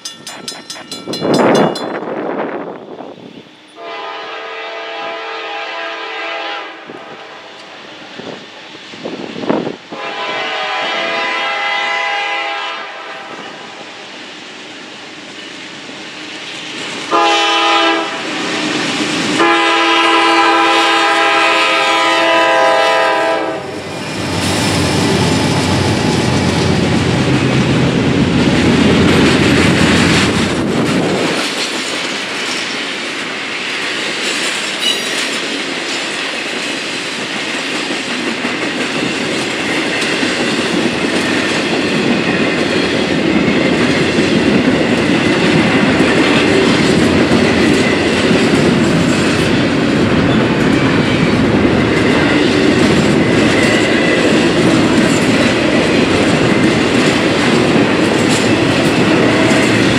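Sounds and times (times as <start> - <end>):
train rumbling and clattering: 0.0 - 59.9
locomotive horn blasts: 3.8 - 7.5, 9.9 - 13.5, 17.1 - 18.3, 19.4 - 23.8.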